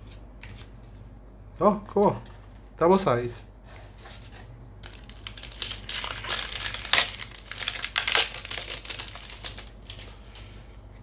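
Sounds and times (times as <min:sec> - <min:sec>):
foil wrapper crinkling: 0:04.8 - 0:10.5.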